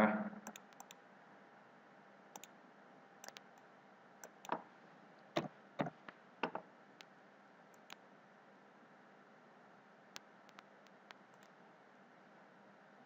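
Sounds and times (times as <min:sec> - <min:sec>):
mouse and keyboard clicks: 0:00.4 - 0:01.0, 0:03.2 - 0:03.6, 0:04.2 - 0:04.6, 0:05.4 - 0:07.1, 0:07.8 - 0:08.0, 0:10.2 - 0:11.6.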